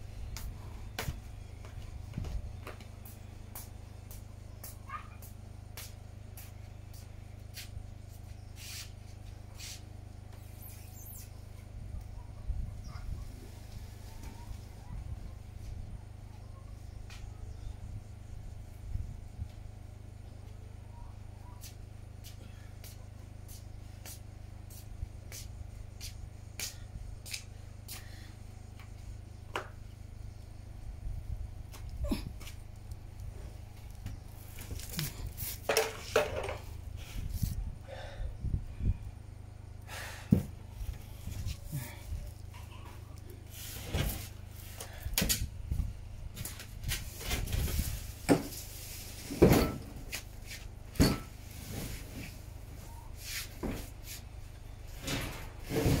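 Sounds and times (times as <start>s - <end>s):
steady low rumble: 22.5s - 35.6s, 36.6s - 43.8s, 44.4s - 49.3s.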